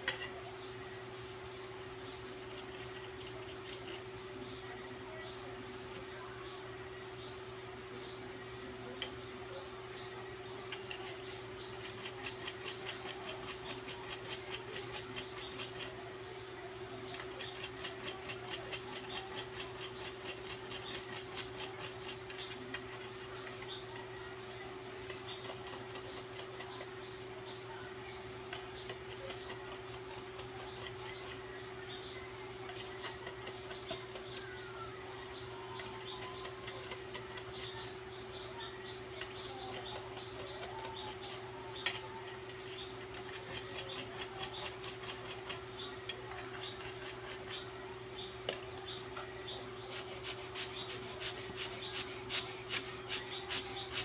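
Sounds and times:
electrical hum: 0.0 - 54.0
small brush scrubbing: 10.9 - 16.0, 17.1 - 23.8, 39.3 - 47.7, 49.9 - 54.0.

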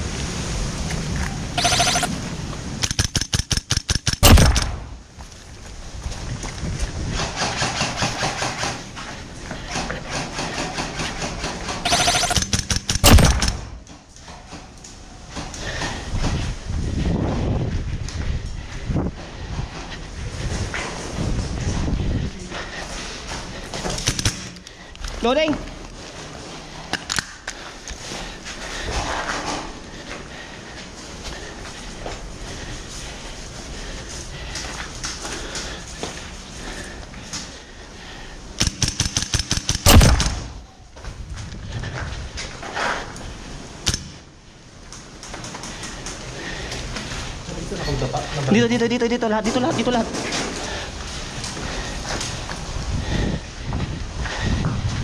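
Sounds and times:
rifle reloading clicks: 2.8 - 4.9, 10.6 - 13.7, 24.0 - 24.7, 38.6 - 40.5
footsteps crunching over rubble: 4.8 - 7.5.

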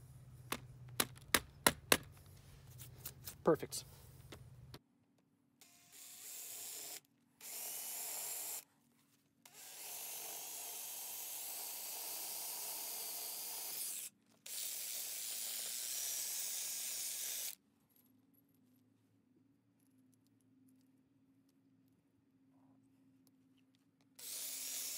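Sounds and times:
drill boring into concrete: 5.6 - 8.6, 9.5 - 17.6, 24.2 - 24.9.

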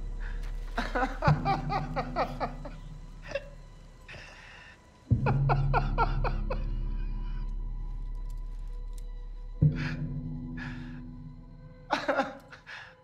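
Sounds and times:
man laughing: 0.7 - 3.6, 5.2 - 7.1, 11.9 - 12.8.

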